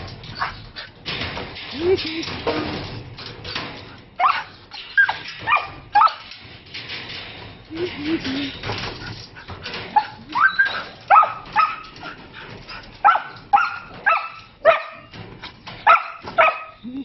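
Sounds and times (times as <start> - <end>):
puppy barking high-pitched: 4.2 - 6.2, 10.0 - 11.9, 13.0 - 15.1, 15.8 - 16.8.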